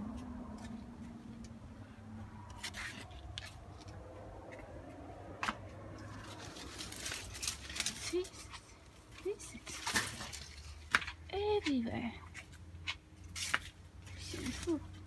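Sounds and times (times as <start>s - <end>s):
low steady hum: 0.0s - 12.8s
leaves rustling: 5.9s - 11.1s.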